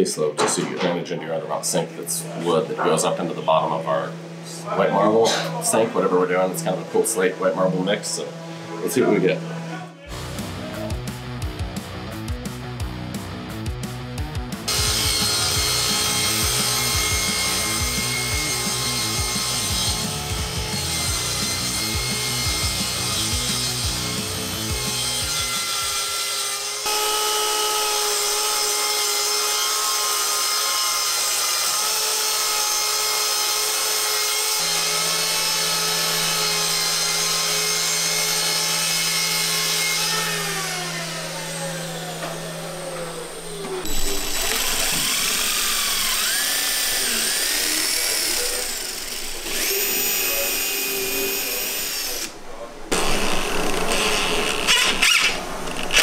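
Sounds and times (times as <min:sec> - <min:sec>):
circular saw cutting wood: 0:00.0 - 0:11.0, 0:14.7 - 0:56.0
cordless drill running: 0:14.7 - 0:52.3, 0:52.9 - 0:56.0.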